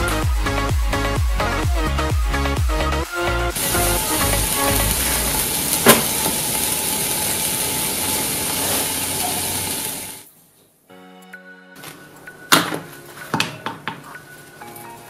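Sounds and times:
hot knife sizzling on chocolate: 3.6 - 10.2.

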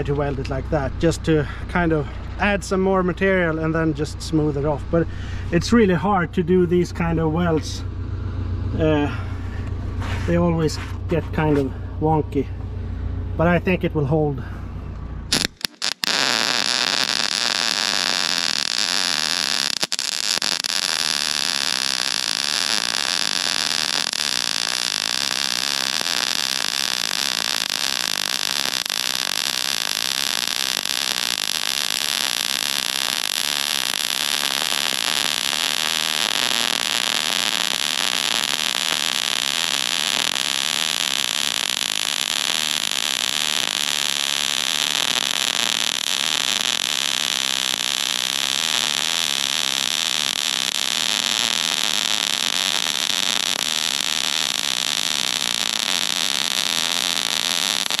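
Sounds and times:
arc welding hiss: 15.3 - 58.0.

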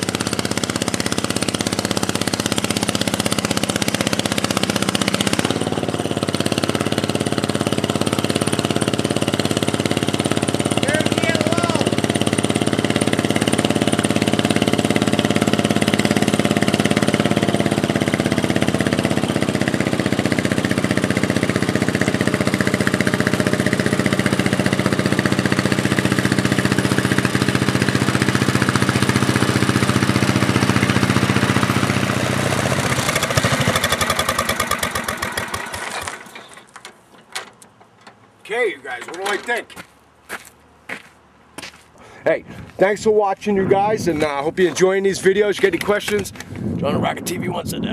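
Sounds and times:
tractor engine running: 0.0 - 40.0.

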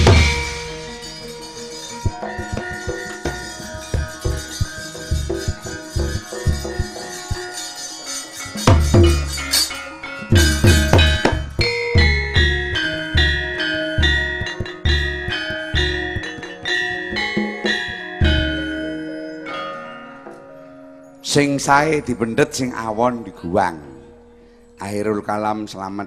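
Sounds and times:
hand drum strokes: 0.0 - 13.4
ringing metallophone notes: 0.0 - 26.0.

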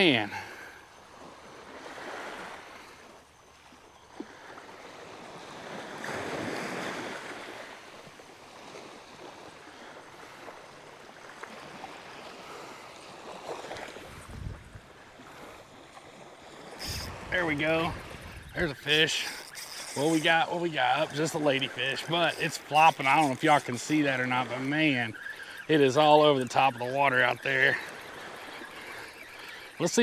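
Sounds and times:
small waves washing on sand: 0.0 - 30.0
wind on microphone: 13.7 - 15.6, 16.6 - 20.3.

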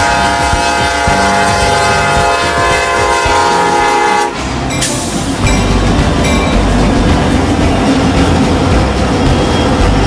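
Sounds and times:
locomotive air horn: 0.0 - 4.6
locomotive rumbling past: 0.0 - 10.0.

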